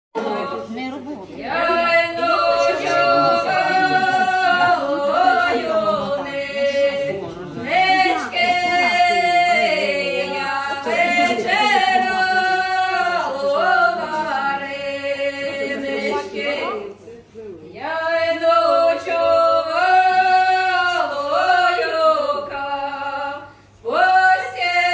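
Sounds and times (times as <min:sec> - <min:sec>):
voices singing unaccompanied: 0:00.2 - 0:17.1, 0:17.7 - 0:24.9.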